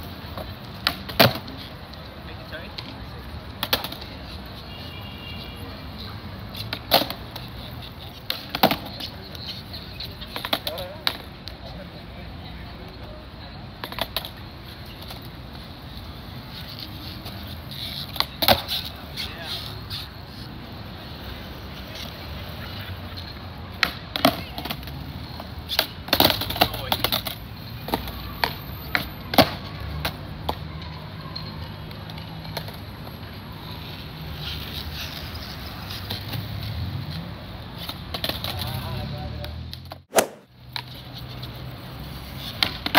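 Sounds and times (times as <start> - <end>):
skateboard clacking: 3.6 - 4.1, 10.1 - 11.6, 13.8 - 15.3, 17.7 - 18.9, 23.7 - 24.8, 25.7 - 30.6.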